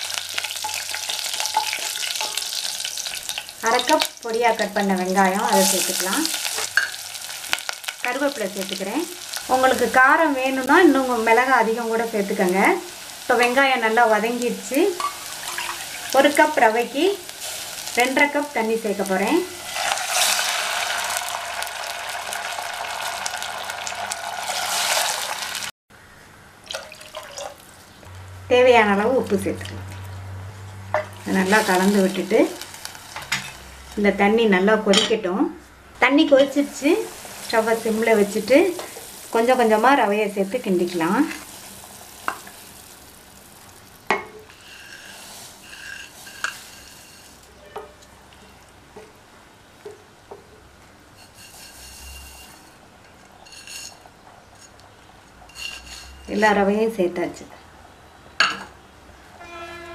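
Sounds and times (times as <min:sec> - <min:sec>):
water sizzling in hot oil: 0:00.0 - 0:25.8, 0:31.2 - 0:33.4, 0:36.5 - 0:47.6, 0:51.2 - 0:52.8
faint hiss: 0:36.5 - 0:47.6.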